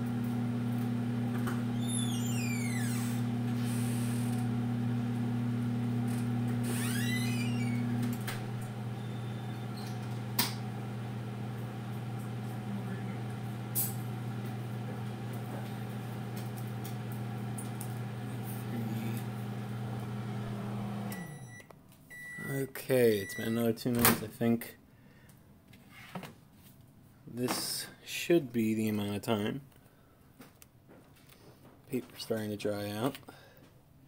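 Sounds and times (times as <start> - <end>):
microwave oven humming: 0.0 - 23.7
high falling squeak: 1.7 - 3.2, 6.6 - 8.0.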